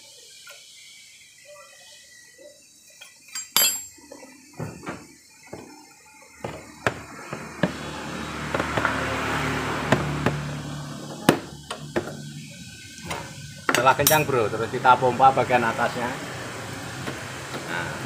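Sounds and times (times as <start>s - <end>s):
metal tools clinking: 3.0s - 4.0s, 14.0s - 14.4s.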